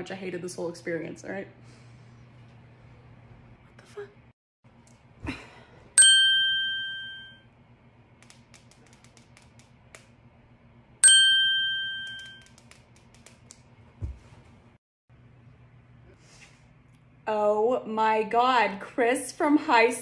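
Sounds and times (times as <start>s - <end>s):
phone notification chime: 6.0s - 7.3s, 11.0s - 12.4s.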